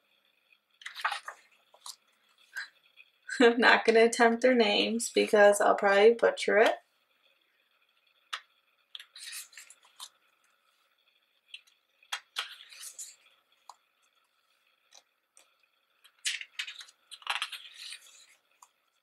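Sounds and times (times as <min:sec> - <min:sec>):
paper pages turning: 0:00.8 - 0:02.0, 0:09.0 - 0:10.2, 0:12.2 - 0:13.2, 0:16.1 - 0:18.4.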